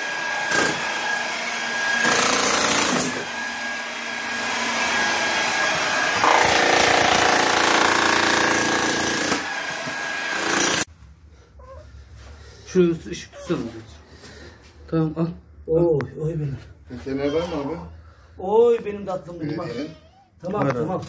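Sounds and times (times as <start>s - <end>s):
power tool whining through tiles: 0.0s - 10.9s.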